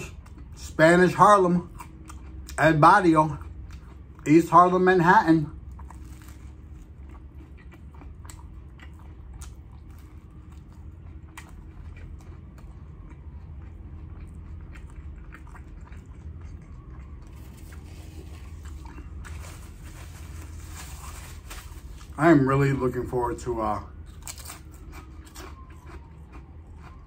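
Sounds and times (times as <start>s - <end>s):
low hum: 0.0s - 27.0s
close chewing mouth clicks: 6.8s - 17.4s.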